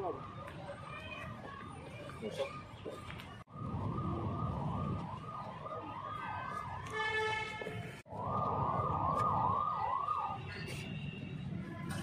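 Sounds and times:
siren yelping: 8.1 - 10.7.

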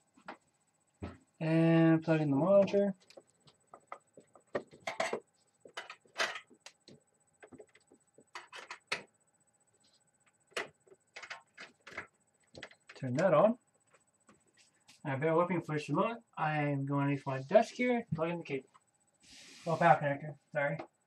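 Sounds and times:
cables clicking and rattling: 10.2 - 13.2.

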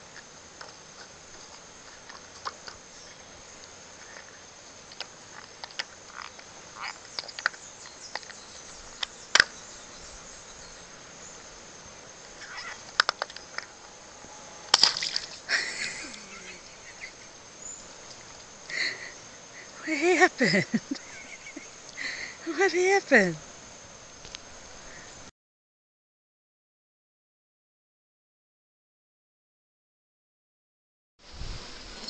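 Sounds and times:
high insect drone: 0.0 - 25.3, 31.2 - 32.0
rubbery balloon squeaks: 12.4 - 12.9.

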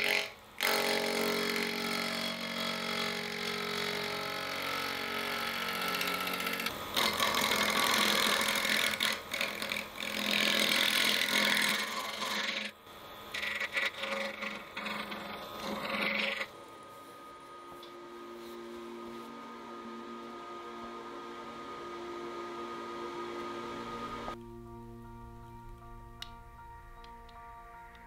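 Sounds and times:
wood lathe humming: 0.0 - 24.4
turning tool scraping wood: 13.3 - 16.5.

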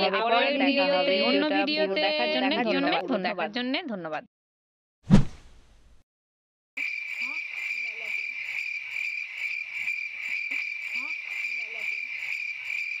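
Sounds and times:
crickets chirping: 6.8 - 13.0.

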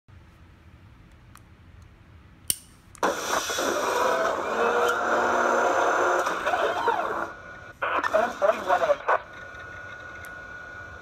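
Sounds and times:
sharp click: 2.5 - 3.0
noisy mechanical gun effect: 3.0 - 5.5.

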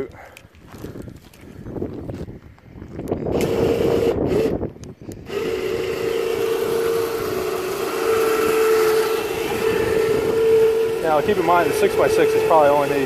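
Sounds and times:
winch motor whining: 3.1 - 13.0.

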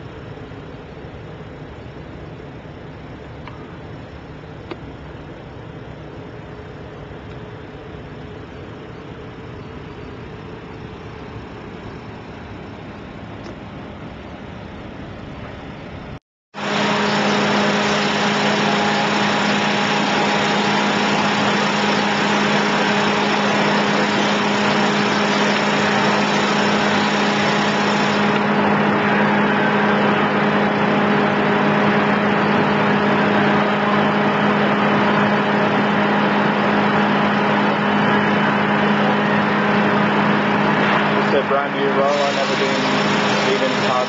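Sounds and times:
industrial machinery hum and hiss: 0.0 - 44.0.

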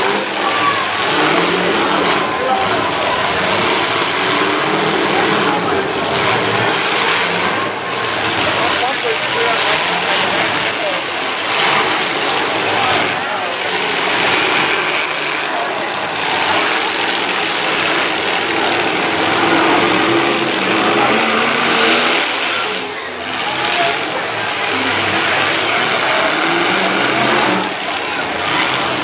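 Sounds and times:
car engines revving: 0.0 - 29.0.

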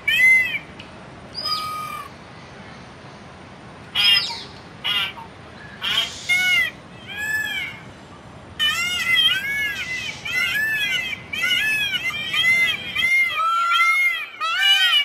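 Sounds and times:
peafowl calling: 0.0 - 0.7, 1.4 - 2.1, 4.0 - 7.9, 8.6 - 15.0.

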